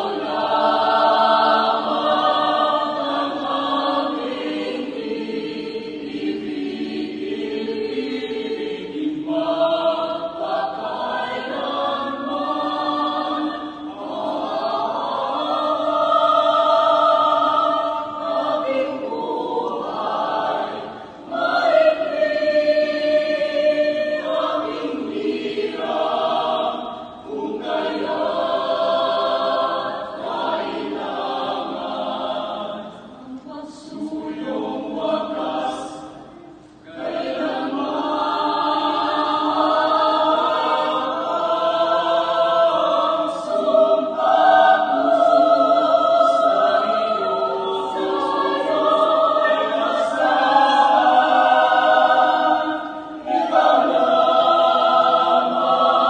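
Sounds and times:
mixed choir singing in harmony: 0.0s - 56.0s.

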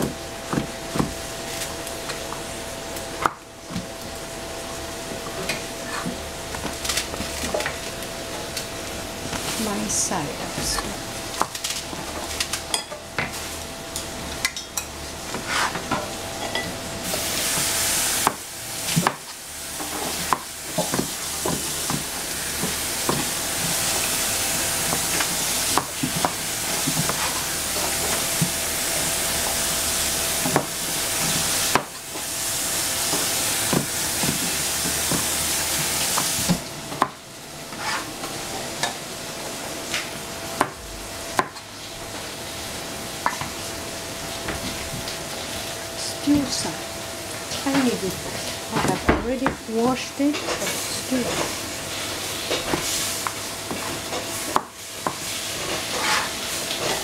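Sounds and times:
cleaver chopping on cutting board: 41.4s - 41.6s.

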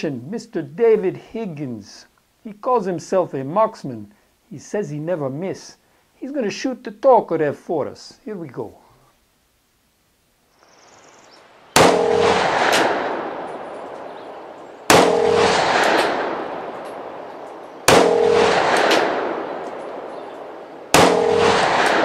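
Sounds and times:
pistol shots echoing: 11.8s - 22.0s.

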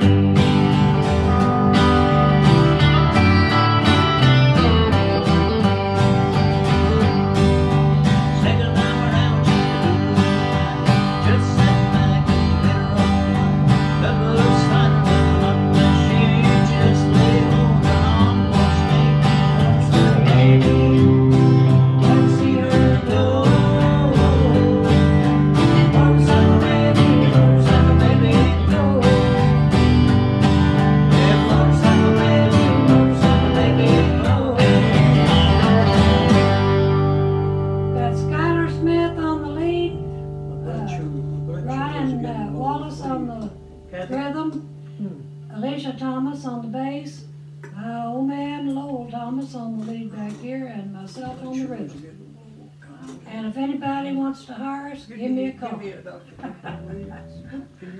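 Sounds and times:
country band playing: 0.0s - 45.4s
electric bass: 0.0s - 49.7s, 56.7s - 57.9s
guitars strummed and picked: 0.0s - 51.7s, 56.4s - 57.9s.

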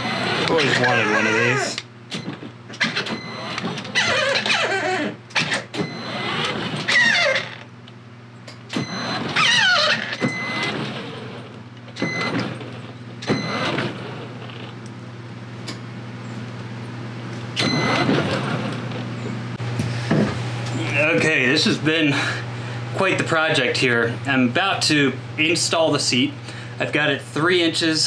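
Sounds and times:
toy truck motors whirring: 0.0s - 1.8s, 2.8s - 7.6s, 8.9s - 11.2s.

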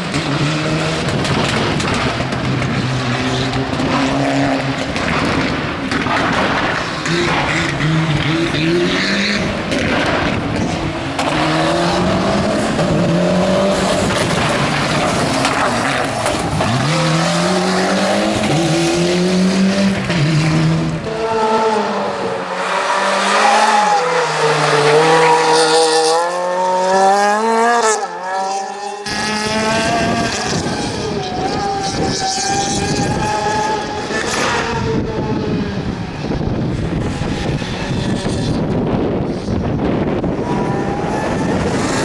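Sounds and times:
rally car engines revving: 0.0s - 42.0s.

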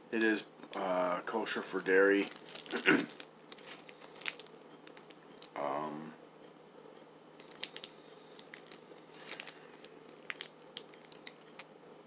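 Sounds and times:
low room hum: 0.0s - 12.0s
plastic wrapper crinkling: 1.9s - 5.6s, 7.4s - 11.7s.

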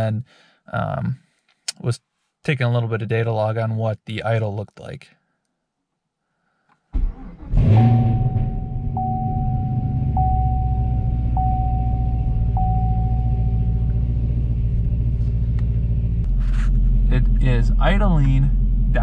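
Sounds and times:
car engine idling: 7.3s - 19.0s
steady electronic tone: 7.6s - 15.2s.

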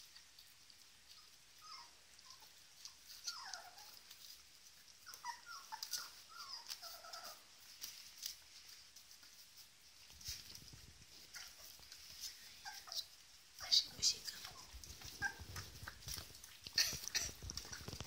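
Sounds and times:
puppies whimpering: 1.1s - 7.6s, 11.2s - 13.2s, 13.8s - 18.0s.

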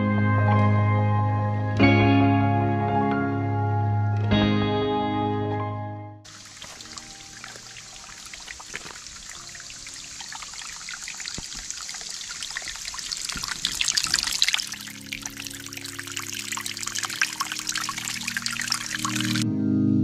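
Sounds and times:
creek water trickling over rocks: 6.3s - 19.4s
fizzing patter: 6.3s - 19.4s.

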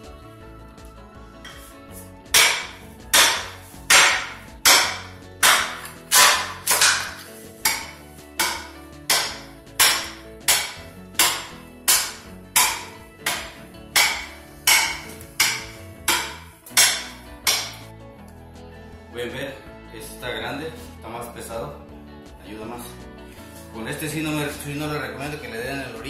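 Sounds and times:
pick mattock chopping floorboards: 2.3s - 17.9s.

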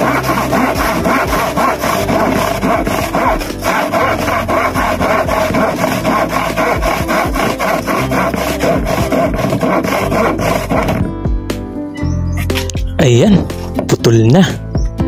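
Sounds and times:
handsaw cutting plywood: 0.0s - 11.2s.

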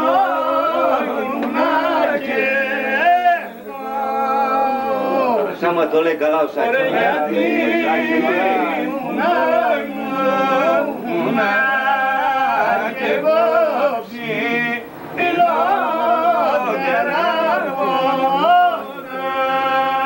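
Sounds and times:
men singing unaccompanied: 0.0s - 20.0s.

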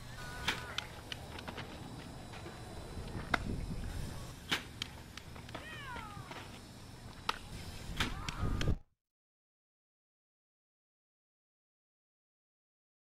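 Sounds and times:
low outdoor rumble: 0.0s - 8.8s
person calling out: 5.6s - 6.4s.

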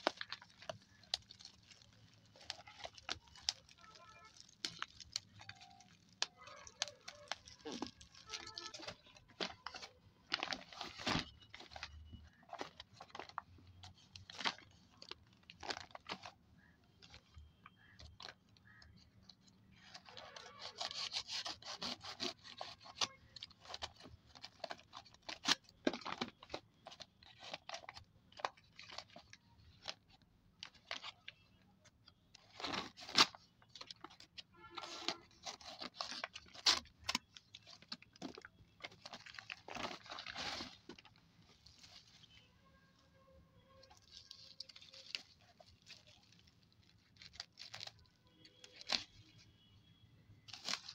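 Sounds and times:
paper bag crinkling and rustling: 0.0s - 42.5s, 43.6s - 49.4s, 50.4s - 50.9s
paper ripping: 19.8s - 25.6s.

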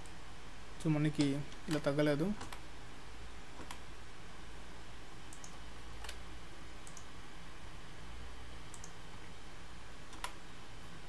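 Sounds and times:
low electrical hum: 0.0s - 11.0s
keyboard and mouse clicks: 1.1s - 2.6s, 3.6s - 3.8s, 5.3s - 6.2s, 6.8s - 7.1s, 8.7s - 9.0s, 10.1s - 10.4s.

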